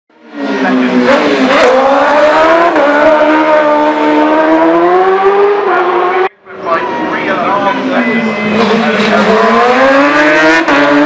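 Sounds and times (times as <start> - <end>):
motorcycle engine at high revs: 0.7 - 6.3, 8.5 - 11.0.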